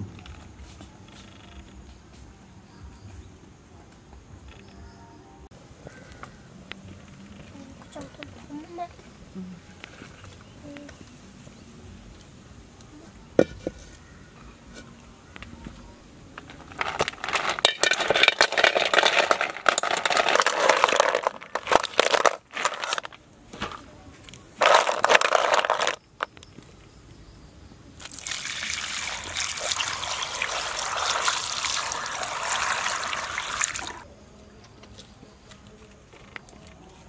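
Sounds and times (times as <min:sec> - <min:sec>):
snails sizzling in frying pan: 0:28.0 - 0:34.0.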